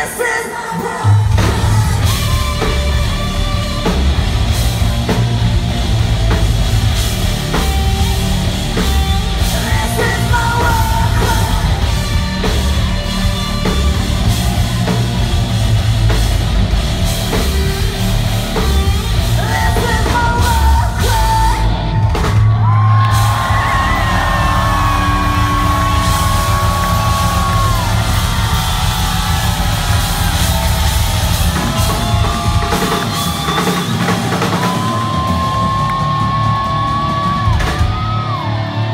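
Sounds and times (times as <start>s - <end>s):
bass guitar: 1.0s - 38.9s
distorted electric guitars: 1.0s - 38.9s
drum kit: 1.0s - 38.9s
woman singing and yelling: 9.6s - 11.7s, 19.4s - 21.8s.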